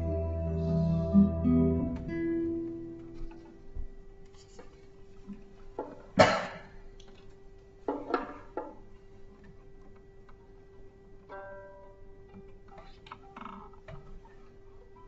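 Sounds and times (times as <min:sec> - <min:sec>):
acoustic guitar note: 0:00.0 - 0:03.9
faint steady hum: 0:00.0 - 0:15.0.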